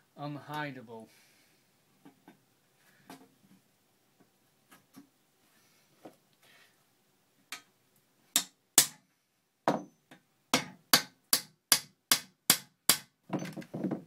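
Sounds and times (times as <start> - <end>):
hammer striking steel rivet: 8.4 - 9.0, 9.7 - 13.6.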